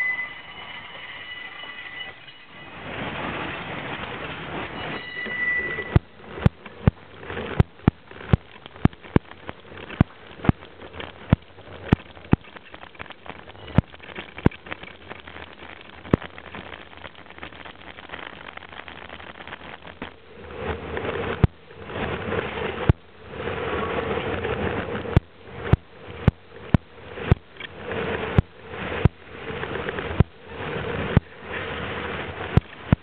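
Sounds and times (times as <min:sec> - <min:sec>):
high wheel squeal: 0:00.0 - 0:06.5, 0:13.3 - 0:14.3
freight train rolling past: 0:00.0 - 0:33.0
sharp irregular clicks: 0:05.9 - 0:20.2.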